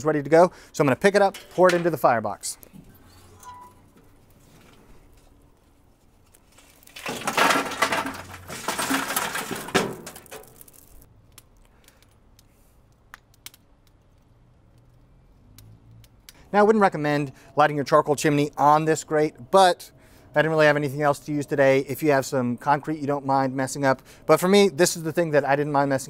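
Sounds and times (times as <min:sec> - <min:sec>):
charcoal clattering onto metal: 0:06.6 - 0:11.0
coals ticking: 0:08.2 - 0:25.6.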